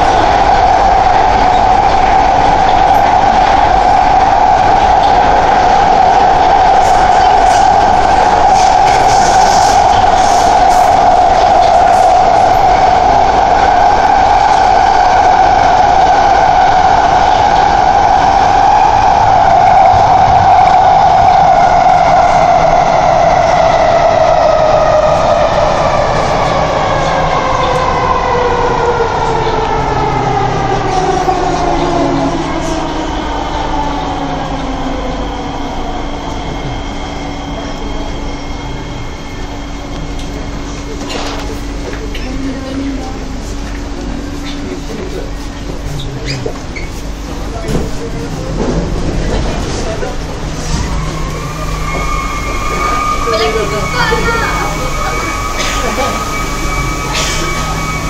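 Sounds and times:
electric train traction whine: 0.0s - 58.0s.

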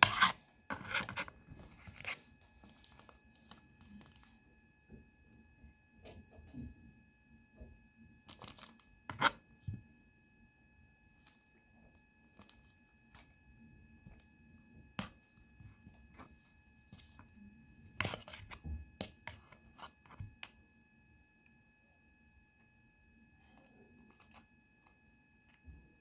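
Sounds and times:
knife scraping avocado: 0.0s - 2.2s, 9.1s - 9.4s
faint high whine: 0.0s - 26.0s.

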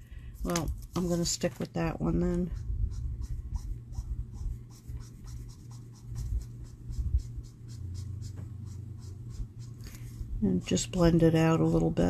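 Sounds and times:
marker scratching on cardstock: 2.3s - 10.1s.

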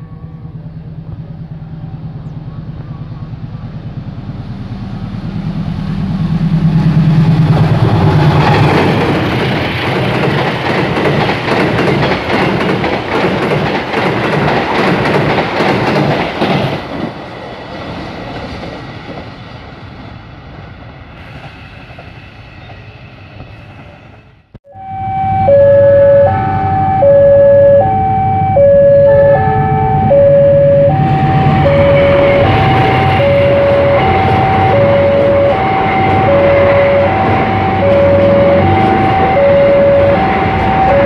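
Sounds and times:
locomotive engine drone: 0.0s - 13.7s, 24.4s - 41.0s
train wheels clattering over rail joints: 7.5s - 17.2s.

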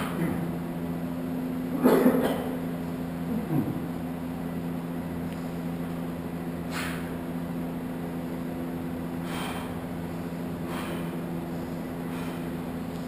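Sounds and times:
steady low hum: 0.0s - 13.0s
short sharp breaths: 6.7s - 7.2s, 9.2s - 9.8s, 10.6s - 11.2s, 12.0s - 12.6s.

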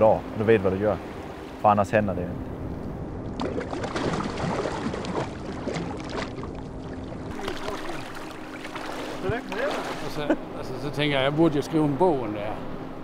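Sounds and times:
water sloshing and splashing: 2.7s - 10.4s.

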